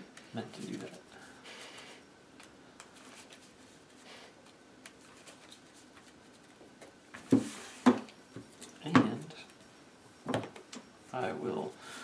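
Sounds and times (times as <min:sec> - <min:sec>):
playing cards rustling: 0:01.7 - 0:07.6.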